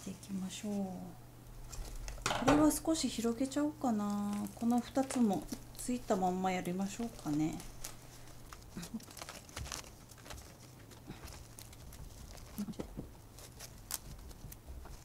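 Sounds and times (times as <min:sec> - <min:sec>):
moss rustling by hand: 0:04.0 - 0:15.0.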